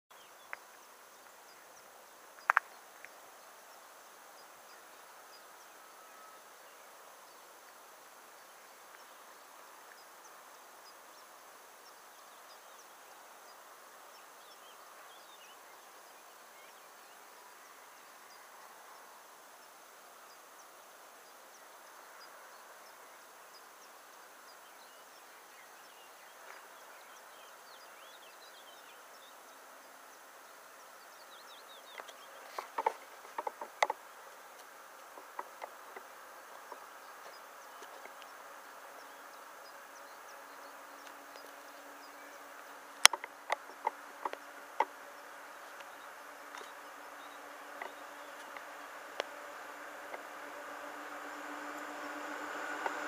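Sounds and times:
faint high chirping: 0:35.2 - 0:53.0.

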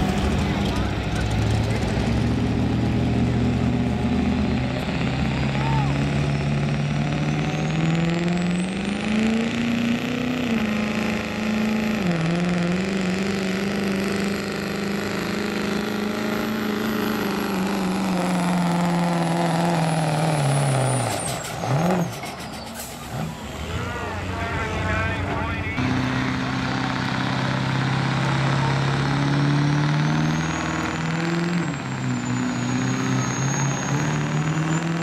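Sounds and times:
diesel truck engine under load: 0:00.0 - 0:35.0
turbocharger whistle: 0:30.0 - 0:35.0.

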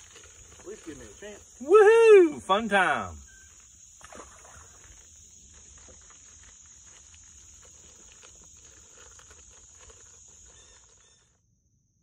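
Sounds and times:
high-pitched insect drone: 0:00.0 - 0:07.8.

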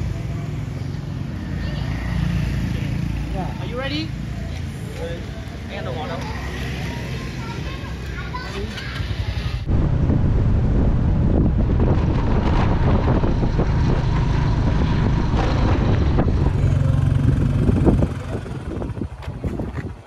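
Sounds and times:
wind buffeting microphone: 0:09.0 - 0:20.0
motorbike engine running: 0:09.6 - 0:19.6.

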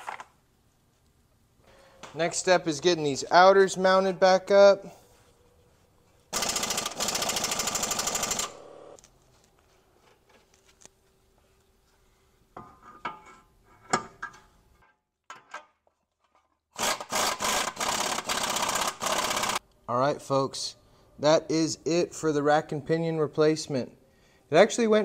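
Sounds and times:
impact wrench hammering: 0:06.4 - 0:09.0, 0:16.9 - 0:19.6.

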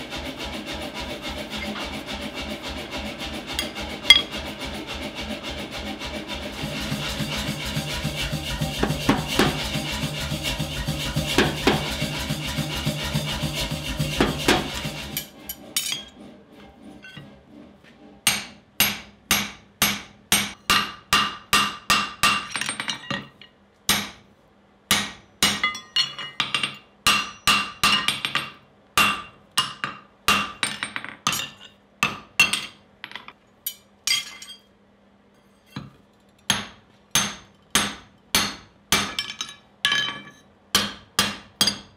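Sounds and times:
steady humming: 0:00.0 - 0:18.4
hammer striking metal punch: 0:03.6 - 0:04.3, 0:18.2 - 0:23.3, 0:23.9 - 0:24.2, 0:24.9 - 0:32.7, 0:35.7 - 0:41.9.

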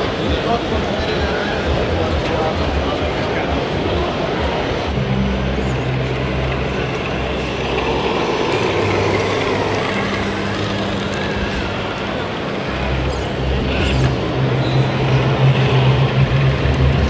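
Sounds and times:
busy hall noise: 0:00.0 - 0:17.0
rc crawler motor drone: 0:03.7 - 0:17.0.

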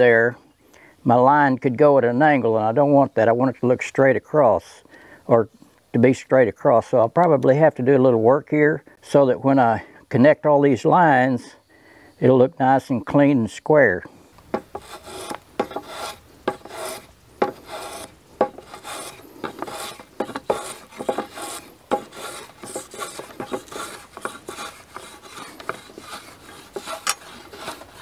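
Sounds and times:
hand plane scraping wood: 0:14.5 - 0:28.0.

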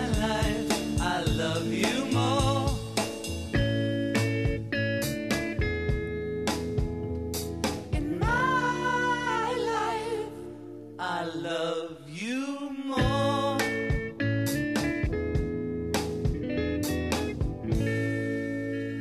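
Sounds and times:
plucked guitar notes: 0:03.5 - 0:11.0, 0:13.0 - 0:19.0
person singing long notes: 0:08.0 - 0:10.4.

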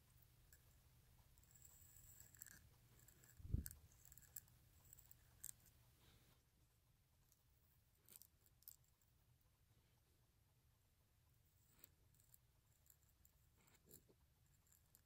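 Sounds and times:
pen nib scratching on paper: 0:00.5 - 0:06.2, 0:11.6 - 0:15.0.

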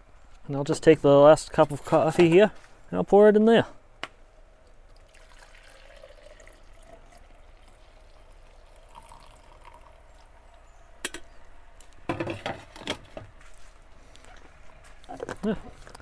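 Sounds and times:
coffee trickling into thermos: 0:04.7 - 0:11.4.

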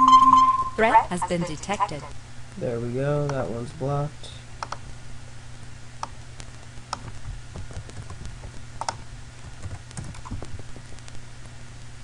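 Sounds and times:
low electrical hum: 0:00.0 - 0:12.0
keyboard and mouse clicks: 0:04.6 - 0:04.8, 0:06.9 - 0:10.6.

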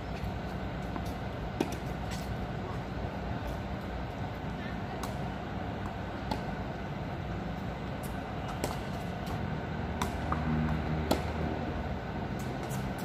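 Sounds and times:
steady traffic hum: 0:00.0 - 0:13.0
tennis ball struck by rackets: 0:01.0 - 0:02.2, 0:05.8 - 0:06.6, 0:08.0 - 0:11.4
low engine drone: 0:05.2 - 0:13.0.

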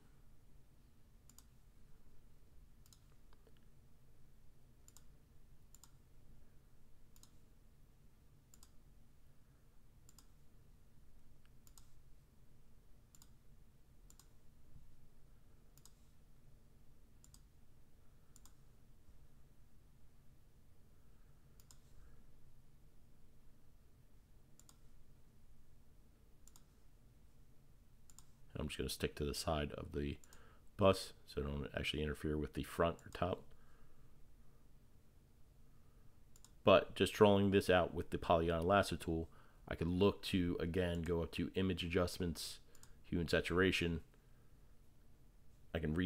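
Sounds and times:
faint computer mouse clicks: 0:01.3 - 0:01.6, 0:02.8 - 0:03.7, 0:04.8 - 0:05.1, 0:05.7 - 0:06.0, 0:07.1 - 0:07.4, 0:08.5 - 0:08.8, 0:10.0 - 0:10.4, 0:11.4 - 0:12.0, 0:13.1 - 0:13.4, 0:14.1 - 0:14.4, 0:15.8 - 0:16.1, 0:17.2 - 0:17.5, 0:18.3 - 0:18.6, 0:21.6 - 0:21.9, 0:24.6 - 0:24.9, 0:26.4 - 0:26.8, 0:28.1 - 0:28.4, 0:36.3 - 0:36.6, 0:42.7 - 0:43.0.

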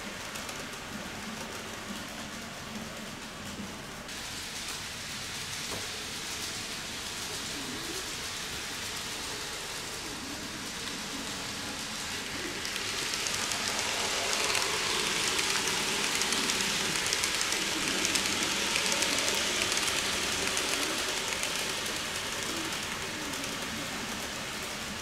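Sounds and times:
model train rolling hiss: 0:00.0 - 0:25.0
rapid clicking from wheels: 0:05.7 - 0:25.0.

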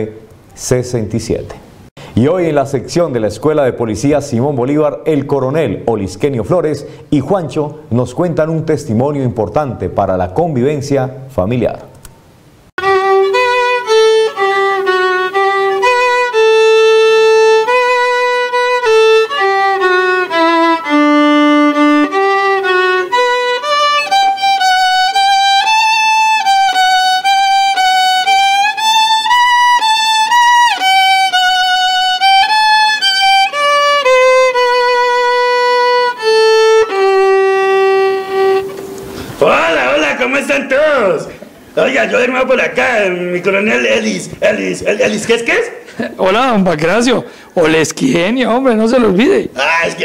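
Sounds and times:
solo violin melody: 0:12.8 - 0:39.2.

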